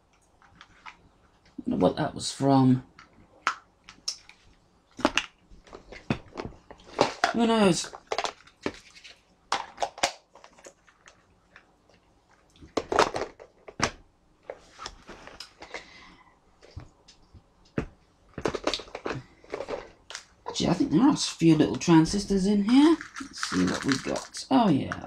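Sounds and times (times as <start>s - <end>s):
plastic boxes clicking and knocking: 5.0s - 11.2s, 12.6s - 14.6s, 16.6s - 20.4s, 22.6s - 25.0s
soft rustle: 14.4s - 16.0s.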